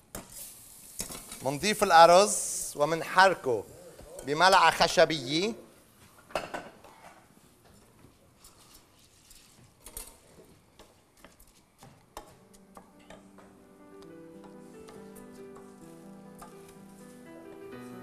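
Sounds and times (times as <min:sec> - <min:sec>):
soft background music: 0:12.2 - 0:18.0.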